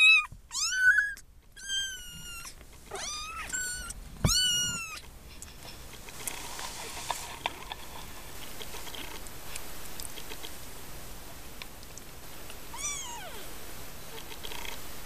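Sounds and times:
kitten mewing: 0.0s - 5.0s, 12.7s - 13.5s.

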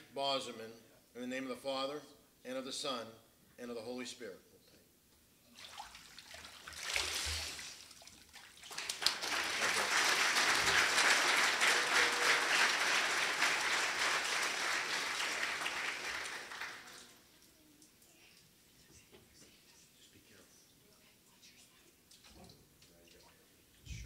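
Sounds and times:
water splashing in a tank: 5.5s - 9.3s
congregation applauding: 8.6s - 17.3s.

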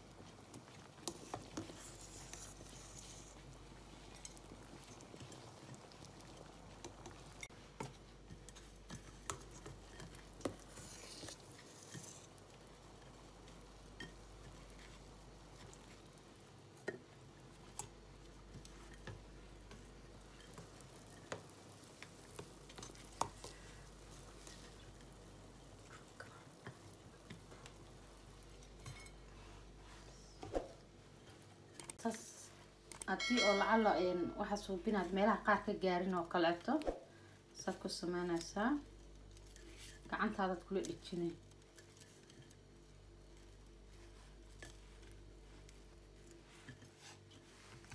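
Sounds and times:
metal utensils tapping pots: 33.0s - 34.7s.

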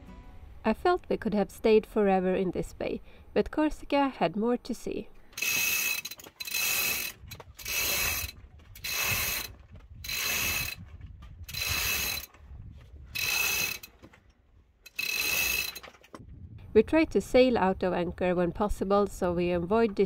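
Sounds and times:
winch ratcheting clicks: 5.3s - 12.5s, 13.1s - 16.2s.

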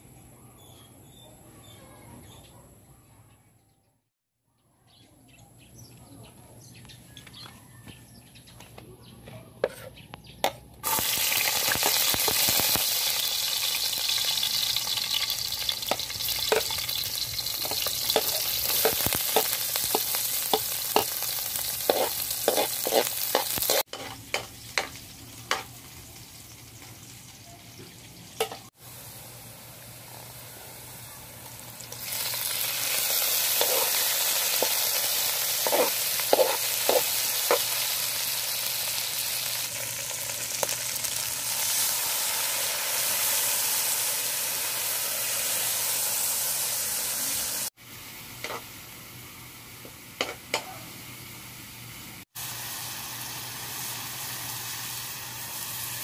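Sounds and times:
garlic and onion sizzling in oil: 9.7s - 56.0s
metal spatula scraping wok: 14.0s - 25.7s, 32.2s - 38.0s, 48.4s - 48.6s.

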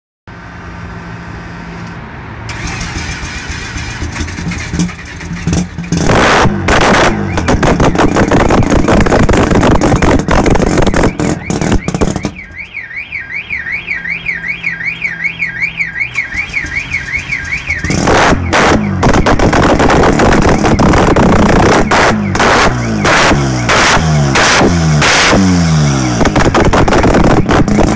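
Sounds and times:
rotary engine revving: 2.5s - 12.3s, 16.3s - 27.9s
car alarm warbling: 6.8s - 26.4s.

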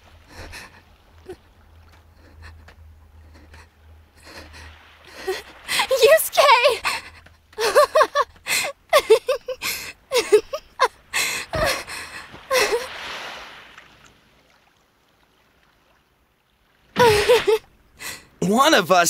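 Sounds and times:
woman gasping and crying out: 4.2s - 6.2s, 11.2s - 12.9s, 17.0s - 18.3s.

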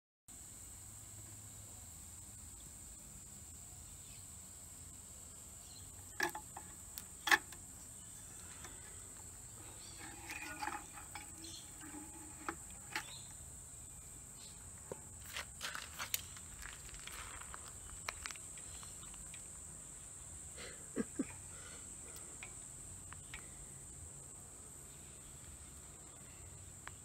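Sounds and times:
faint high-pitched whine: 0.3s - 27.0s
wire clicking on bucket rim: 6.0s - 7.7s, 8.4s - 13.4s, 22.1s - 23.5s.

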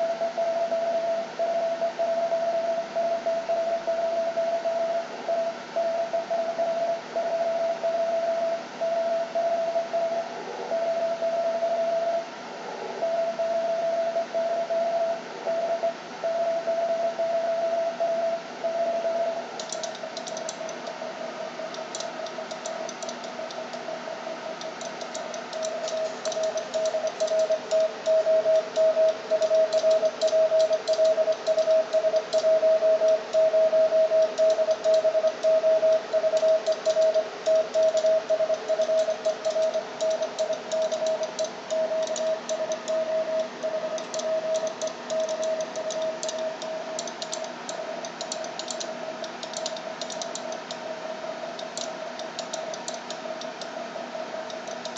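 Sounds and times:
morse code beeping tone: 0.0s - 12.3s, 13.0s - 50.8s
fast light clicking: 19.6s - 21.0s, 38.8s - 50.8s.

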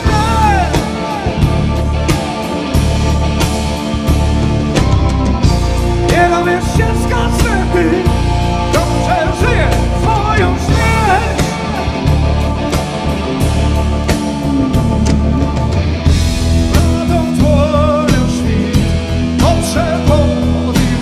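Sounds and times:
man singing: 0.0s - 2.8s, 6.0s - 12.4s, 16.6s - 21.0s
rock band playing: 0.0s - 21.0s.

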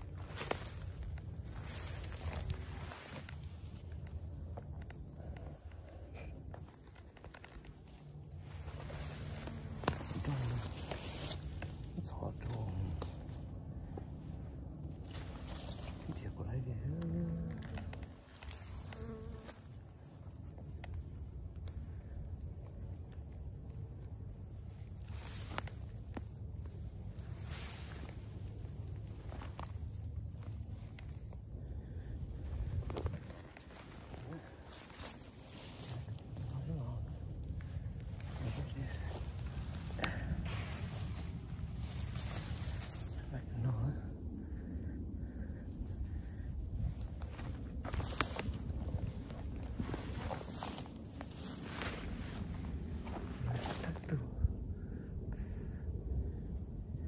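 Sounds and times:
insects droning: 0.0s - 57.0s
soft ticks and snaps: 0.3s - 8.4s, 9.3s - 13.4s, 16.9s - 19.4s, 20.5s - 21.8s, 48.0s - 48.6s
low rumble: 27.2s - 57.0s.

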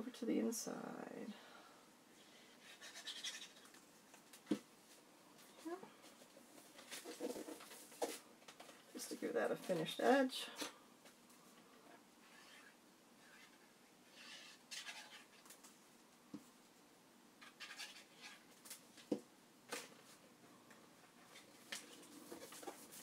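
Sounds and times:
paper rustling and scraping: 6.6s - 8.8s, 12.2s - 15.8s, 17.4s - 18.8s, 21.2s - 23.0s.

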